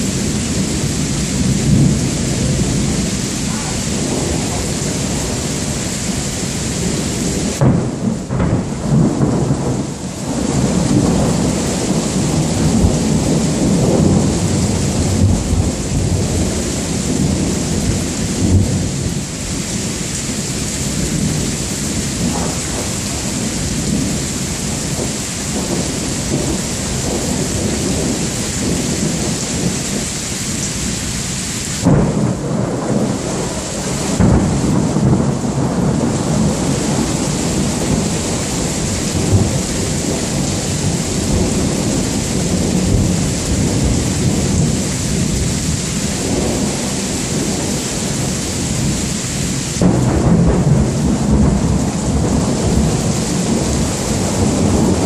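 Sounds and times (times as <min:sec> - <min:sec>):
thunder rumbling: 0:00.0 - 0:31.0, 0:31.7 - 0:55.0
rain falling: 0:00.0 - 0:55.0
sharp thunder cracks: 0:06.9 - 0:19.2, 0:22.2 - 0:29.8, 0:31.8 - 0:45.2, 0:49.8 - 0:55.0.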